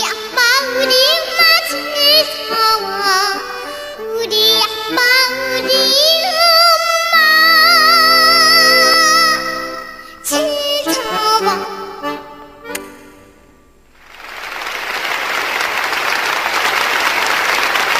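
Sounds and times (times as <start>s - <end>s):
girl singing with vibrato: 0.0s - 12.5s
instrumental accompaniment: 0.0s - 14.6s.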